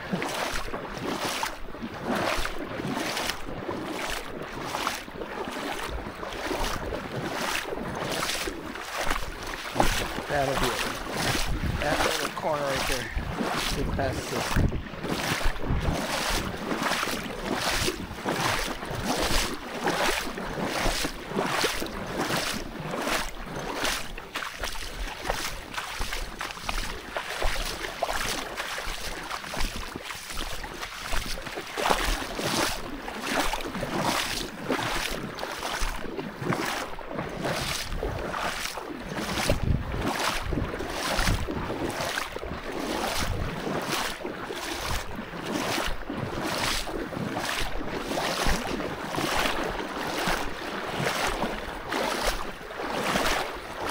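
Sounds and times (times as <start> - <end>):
wind on microphone: 9.3 - 19.4, 39.1 - 43.6.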